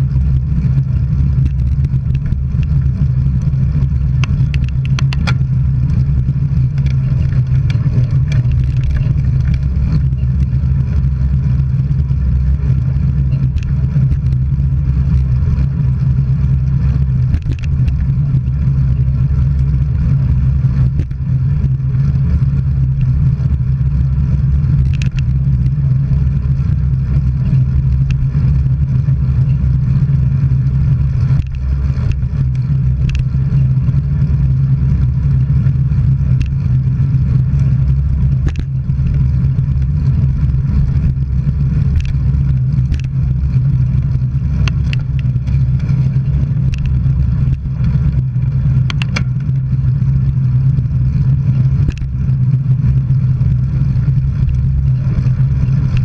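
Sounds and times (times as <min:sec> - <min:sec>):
low hum: 0:00.0 - 0:56.0
road and wind noise: 0:00.0 - 0:56.0
faint clicks: 0:31.2 - 0:33.4, 0:51.9 - 0:52.1.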